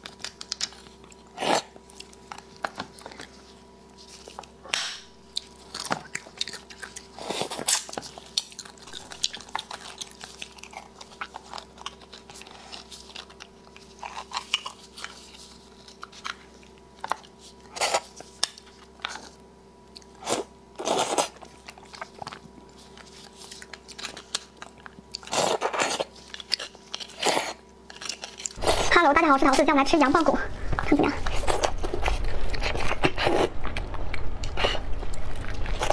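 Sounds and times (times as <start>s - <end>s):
wet chewing and sucking: 5.2s - 28.9s.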